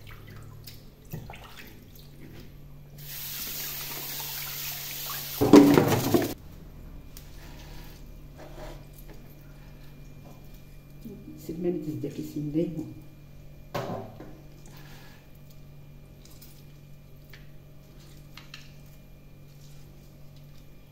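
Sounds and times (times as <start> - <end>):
tap water splashing into colander: 3.4 - 6.4.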